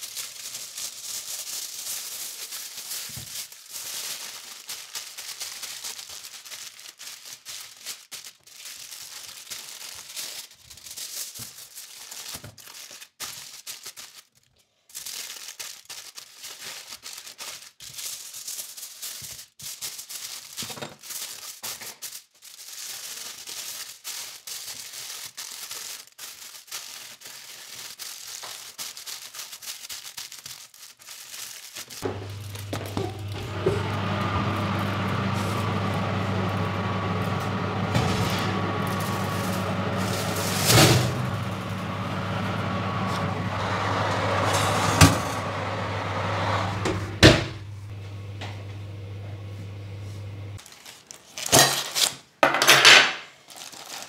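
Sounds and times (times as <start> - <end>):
aluminium foil crinkling: 0.0 - 43.3, 50.6 - 54.0.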